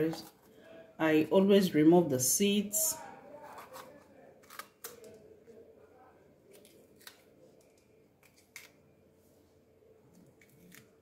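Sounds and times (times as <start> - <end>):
knife cutting bell pepper: 3.4 - 5.2.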